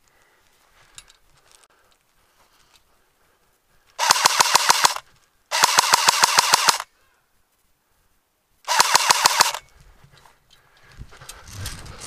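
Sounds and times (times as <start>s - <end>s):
airsoft gun firing full-auto bursts: 4.0s - 6.9s, 8.7s - 9.6s.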